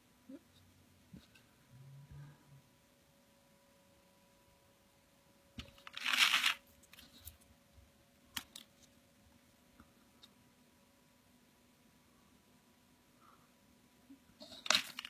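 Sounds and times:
crinkling rustle: 5.6s - 7.5s, 14.4s - 15.0s.

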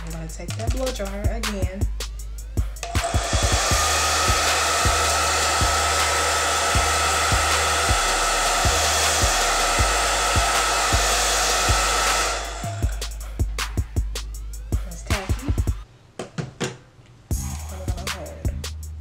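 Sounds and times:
background music beat: 0.0s - 15.9s, 17.3s - 19.0s
hair dryer whining: 2.8s - 13.8s.

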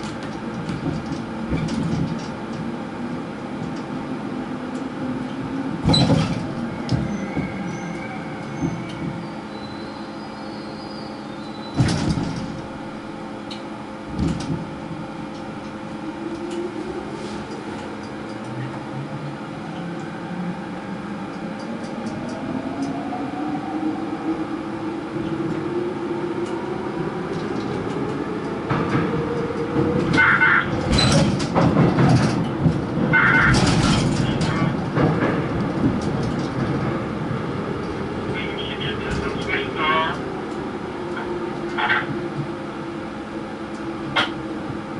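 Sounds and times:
rail clattering: 11.7s - 15.8s, 27.3s - 42.5s.

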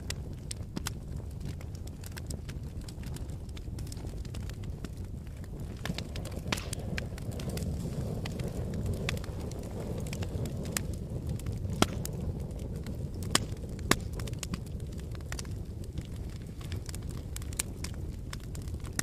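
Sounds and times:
burning wood popping: 0.0s - 19.0s
wood fire crackling: 0.0s - 19.0s.

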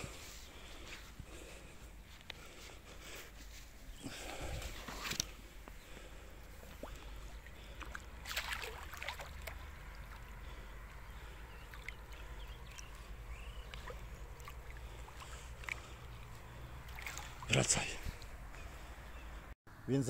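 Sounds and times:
water sloshing: 3.9s - 19.4s
water splash: 6.7s - 10.4s, 16.8s - 18.0s.

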